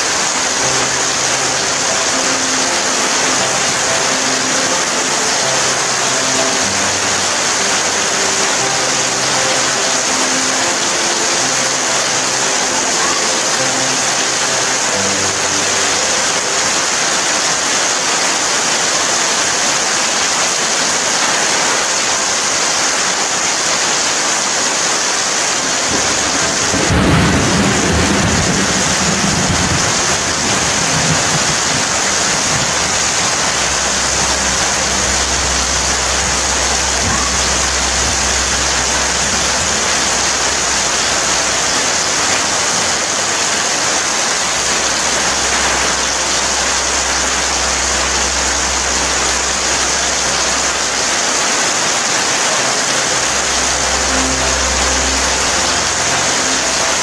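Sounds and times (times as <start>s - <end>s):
heavy rain: 0.0s - 57.0s
thunder rumbling: 25.8s - 51.2s.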